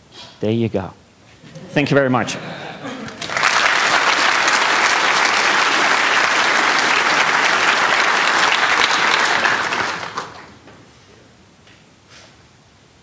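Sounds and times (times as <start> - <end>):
audience clapping: 1.4 - 10.9.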